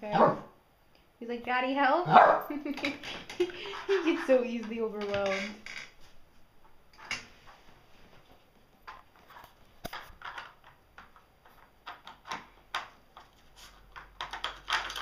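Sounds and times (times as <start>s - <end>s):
plastic lids clicking and knocking: 2.8s - 5.9s, 8.9s - 13.3s, 13.9s - 15.0s.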